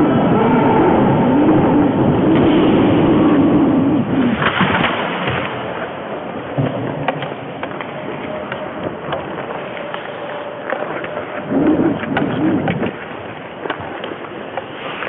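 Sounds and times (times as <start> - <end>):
skates scraping on ice: 4.2 - 15.0
hockey sticks clacking: 4.3 - 15.0.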